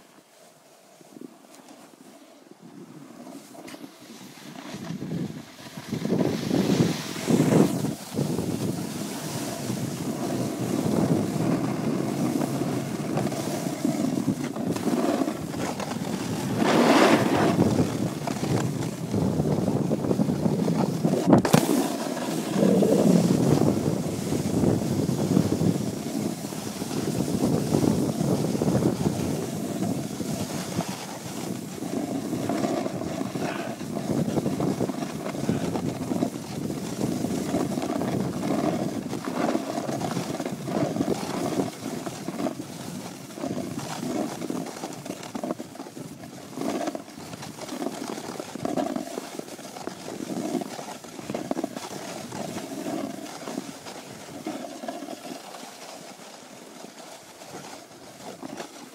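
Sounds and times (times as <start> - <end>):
skis sliding on snow: 0.0 - 58.9
wind on microphone: 4.4 - 55.3.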